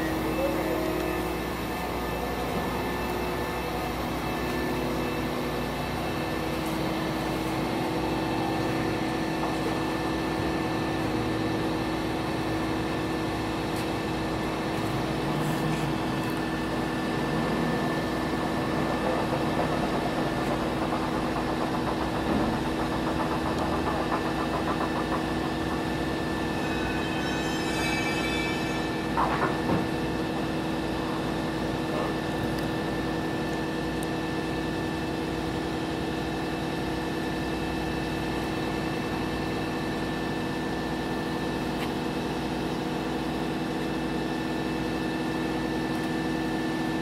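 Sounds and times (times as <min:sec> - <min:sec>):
excavator diesel engine hum: 0:00.0 - 0:47.0.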